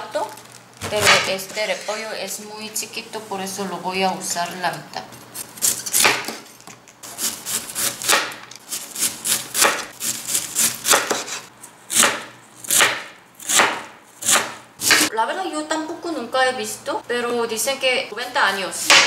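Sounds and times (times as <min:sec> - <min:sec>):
knife chopping cabbage: 0:00.8 - 0:01.5, 0:05.4 - 0:06.4, 0:07.0 - 0:15.1, 0:18.8 - 0:19.0.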